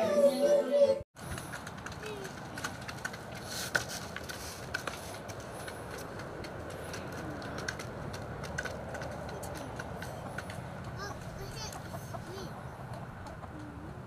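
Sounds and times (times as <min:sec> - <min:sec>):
hens pecking on plastic dishes: 0:01.2 - 0:14.0.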